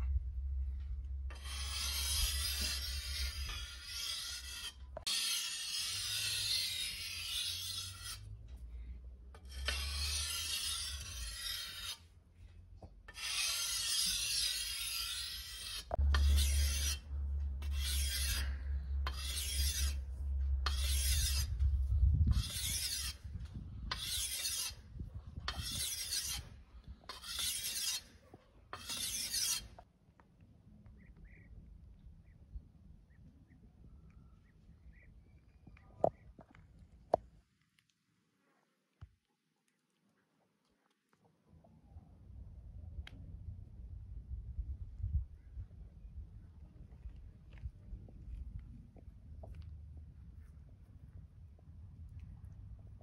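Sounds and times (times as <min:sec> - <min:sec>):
blade scraping on whetstone: 0:01.3 - 0:08.3, 0:09.4 - 0:12.1, 0:13.1 - 0:21.6, 0:22.3 - 0:23.2, 0:23.9 - 0:24.8, 0:25.5 - 0:26.5, 0:27.1 - 0:29.8.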